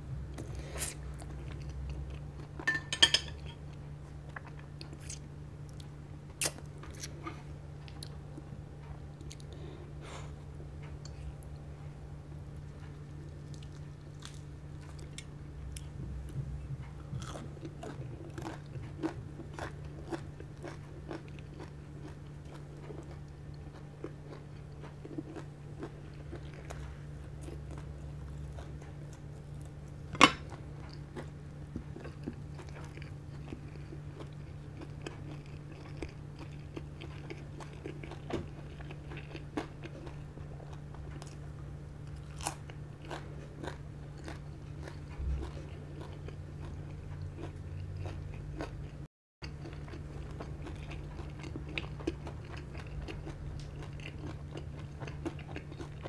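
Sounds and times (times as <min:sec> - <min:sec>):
steady low hum: 0:00.0 - 0:56.0
crunchy biting and chewing: 0:13.0 - 0:56.0.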